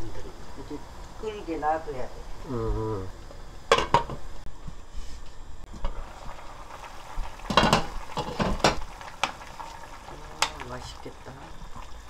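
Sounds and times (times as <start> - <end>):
soup bubbling: 5.7 - 12.0.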